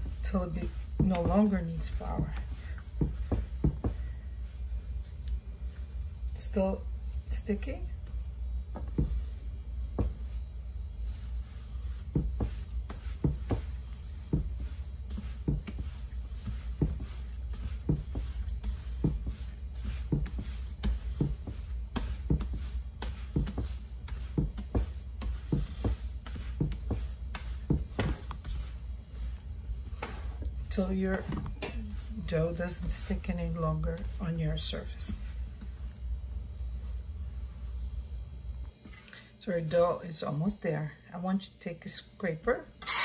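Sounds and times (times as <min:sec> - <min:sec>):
hands kneading dough: 0:00.0 - 0:39.0
steady low hum: 0:00.0 - 0:43.0
dull thumps on worktop: 0:00.9 - 0:04.0, 0:08.7 - 0:09.2, 0:09.9 - 0:10.2, 0:12.1 - 0:28.7.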